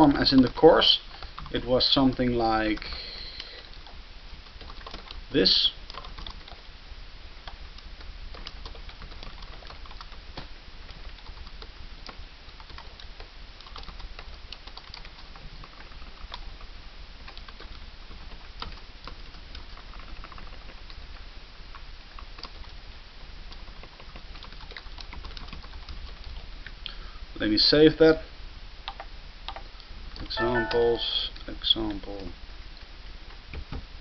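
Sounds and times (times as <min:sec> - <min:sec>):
computer keyboard typing: 0:00.0 - 0:05.2, 0:05.8 - 0:06.6, 0:07.4 - 0:10.2, 0:10.9 - 0:21.1, 0:22.2 - 0:22.8, 0:23.5 - 0:26.4, 0:28.8 - 0:29.7, 0:30.4 - 0:31.0
low hum and hiss: 0:00.0 - 0:24.7, 0:25.6 - 0:34.0.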